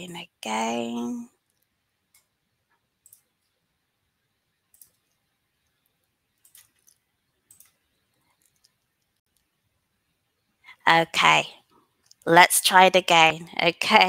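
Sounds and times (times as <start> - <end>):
faint computer clicks: 3.0 - 3.5.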